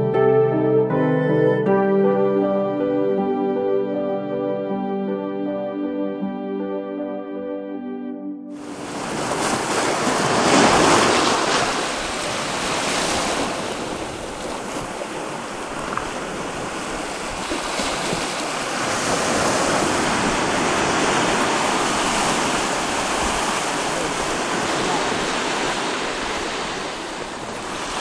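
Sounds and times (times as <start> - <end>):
ocean surf washing onto beach: 8.6 - 28.0.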